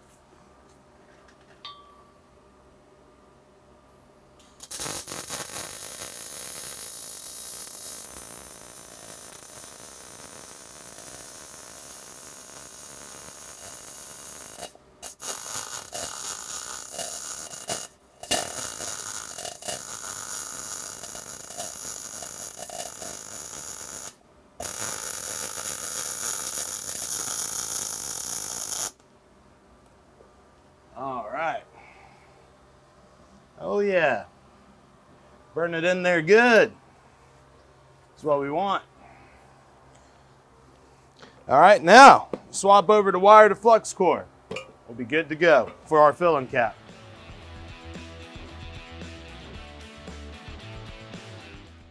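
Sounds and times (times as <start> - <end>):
welding arc hissing and crackling: 4.4 - 29.0.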